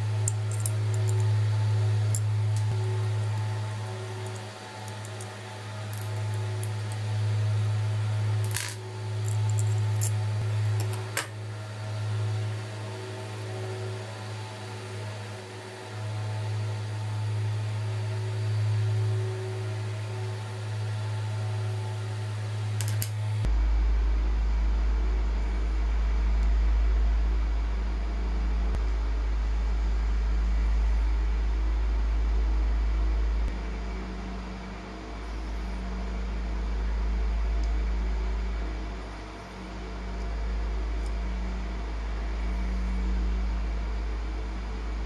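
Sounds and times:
steady low hum: 0.0s - 45.0s
small metal parts clicking: 0.2s - 1.3s, 4.2s - 7.0s, 8.4s - 11.3s, 22.8s - 23.2s.

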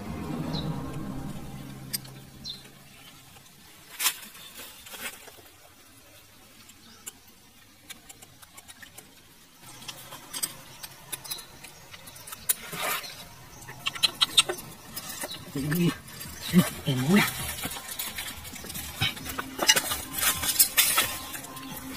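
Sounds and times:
scrape: 12.6s - 13.2s.

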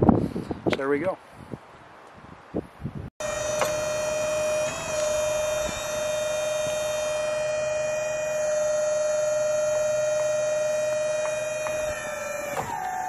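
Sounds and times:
sawmill high-pitched whine: 3.2s - 13.0s.

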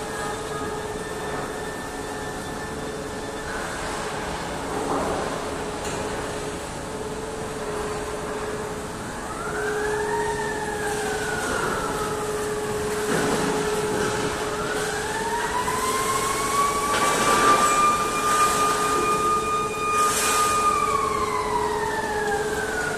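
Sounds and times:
electric motors whining: 6.8s - 22.9s.

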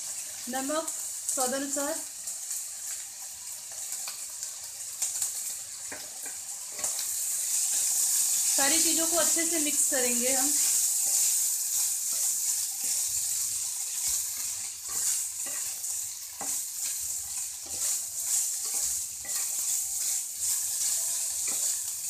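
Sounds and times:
fried rice sizzling in a pan: 0.0s - 22.0s
spatula scraping a pan: 5.9s - 9.1s, 10.2s - 22.0s.

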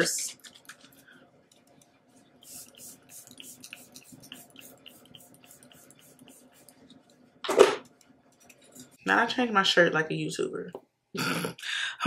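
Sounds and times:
spray bottle hissing spritzes: 2.4s - 6.7s.

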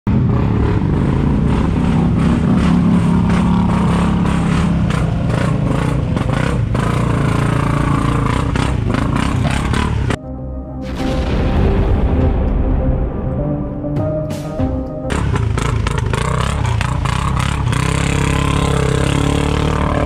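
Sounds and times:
quad bike engine under load: 0.1s - 10.2s, 15.1s - 20.0s.

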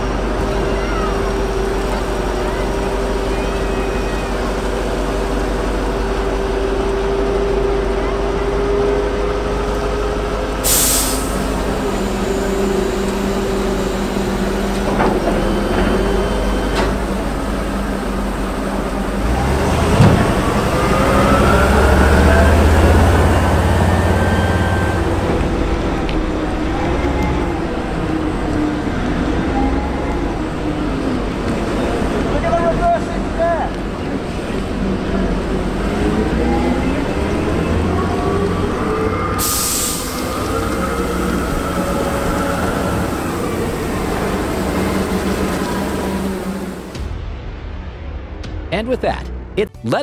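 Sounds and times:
heavy vehicle engine running: 0.0s - 47.3s
air brake hiss: 10.6s - 14.6s, 39.4s - 40.5s.

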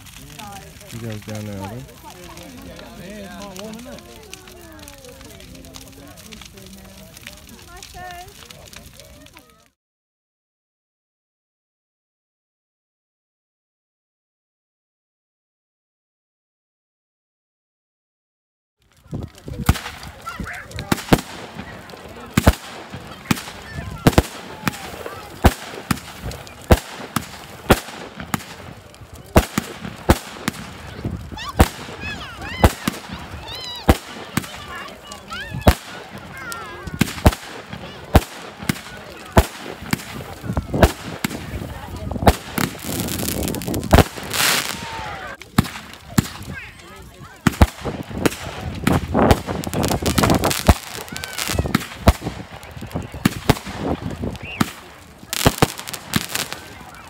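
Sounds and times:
firework crackling: 0.0s - 9.8s, 18.8s - 57.0s
firework shells bursting: 19.4s - 46.6s, 47.4s - 56.9s.

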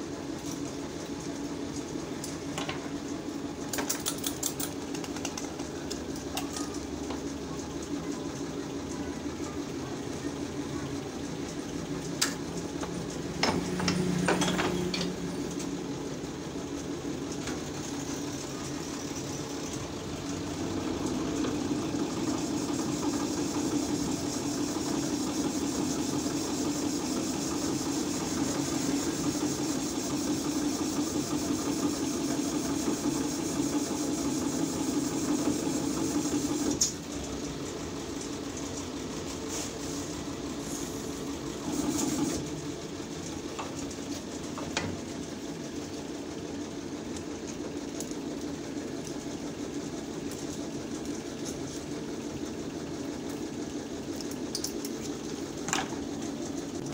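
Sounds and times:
steady motor hum: 0.0s - 56.9s.

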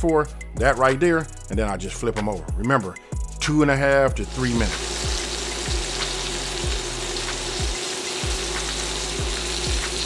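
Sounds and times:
background music with low beat: 0.0s - 10.0s
meat sizzling in hot oil: 4.2s - 10.0s.

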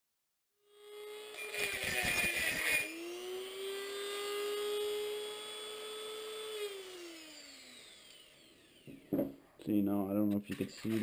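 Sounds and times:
rotary tool whining: 0.7s - 9.3s.

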